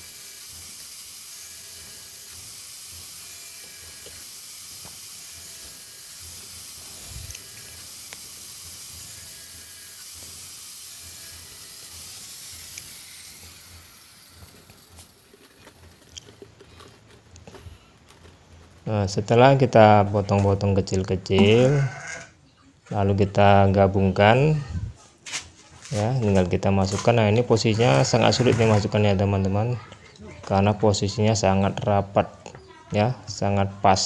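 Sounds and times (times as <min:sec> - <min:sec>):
angle grinder cutting plastic: 0:00.0 - 0:19.5, 0:25.9 - 0:29.1.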